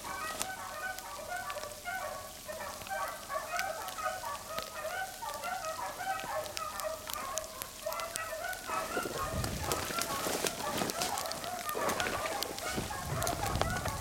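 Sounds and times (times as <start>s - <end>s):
hounds baying: 0.0s - 14.0s.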